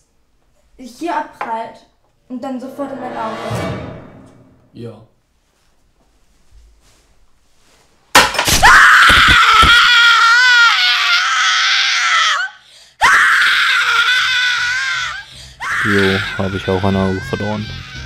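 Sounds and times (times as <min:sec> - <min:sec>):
person screaming shrilly: 0:08.5 - 0:18.0.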